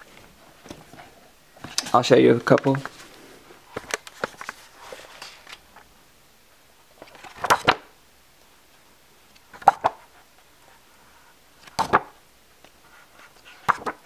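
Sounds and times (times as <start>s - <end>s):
paper rustling: 0.0s - 5.7s, 12.8s - 14.0s
book page flapping: 3.7s - 5.6s, 7.0s - 7.9s, 11.6s - 12.2s, 13.2s - 14.0s
papery slaps: 13.6s - 14.0s.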